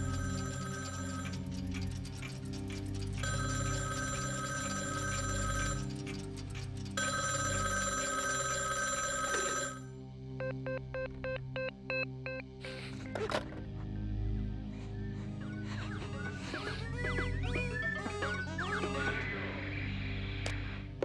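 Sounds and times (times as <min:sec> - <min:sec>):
telephone bell ringing: 0:00.0 - 0:01.5, 0:03.2 - 0:06.3, 0:07.0 - 0:09.9
low sustained music: 0:12.6 - 0:17.9.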